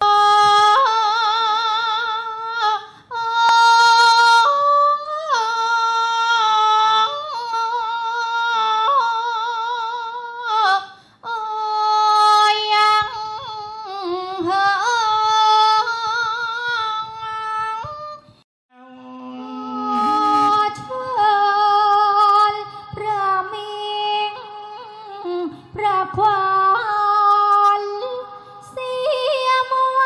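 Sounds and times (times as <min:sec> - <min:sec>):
woman singing with vibrato: 0:00.0 - 0:30.0
woman breathing in: 0:02.9 - 0:03.1, 0:10.9 - 0:11.2.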